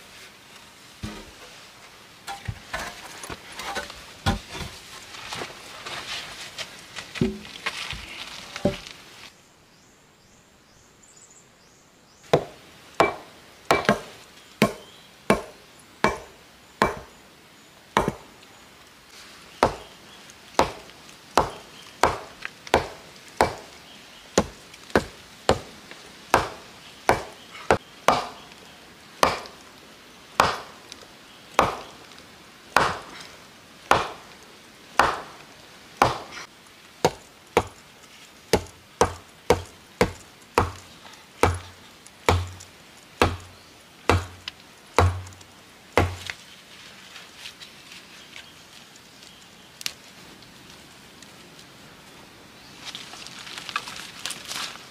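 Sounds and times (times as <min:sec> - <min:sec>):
hatchet chopping wood: 0:12.3 - 0:17.1, 0:18.0 - 0:18.3, 0:19.6 - 0:20.0, 0:20.6 - 0:23.8, 0:24.4 - 0:28.4, 0:29.2 - 0:29.6, 0:30.4 - 0:30.8, 0:31.6 - 0:32.0, 0:32.8 - 0:33.2, 0:33.9 - 0:34.3, 0:35.0 - 0:35.4, 0:36.0 - 0:37.8, 0:38.5 - 0:45.4, 0:46.0 - 0:46.4.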